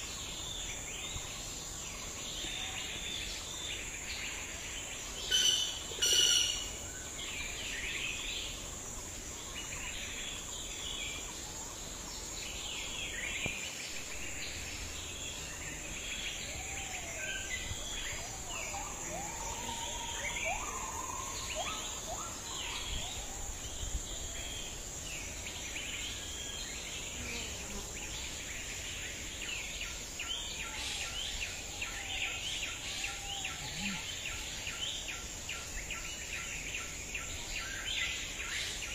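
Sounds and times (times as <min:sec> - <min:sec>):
birds chirping: 0:00.0 - 0:38.8
insects buzzing: 0:00.0 - 0:38.9
whistled bird calls: 0:05.2 - 0:06.7.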